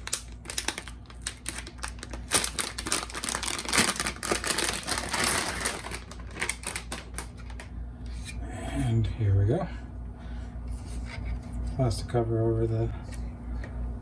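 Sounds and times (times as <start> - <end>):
anti-static bag crinkling: 0.0 - 7.7.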